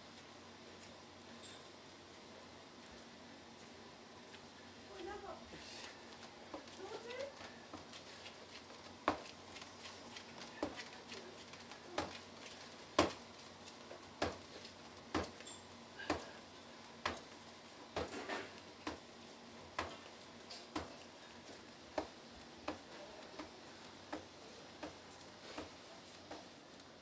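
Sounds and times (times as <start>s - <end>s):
dough slapping in bowl: 12.9s - 15.4s.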